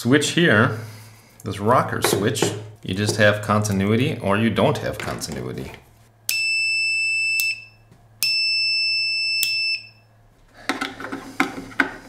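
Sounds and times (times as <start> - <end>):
multimeter continuity beep: 6.3 - 10.1.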